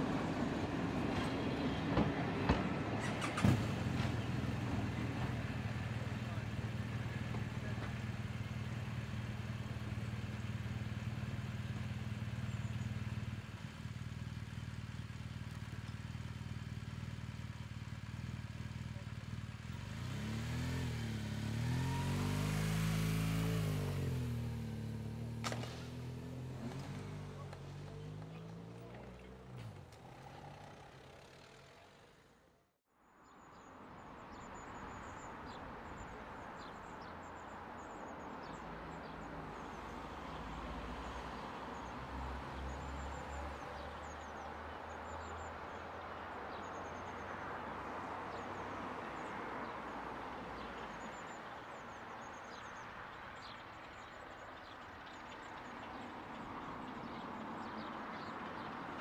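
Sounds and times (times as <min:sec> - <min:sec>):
diesel locomotive engine: 0:00.0 - 0:20.7
birds chirping: 0:04.0 - 0:31.8, 0:33.3 - 0:59.0.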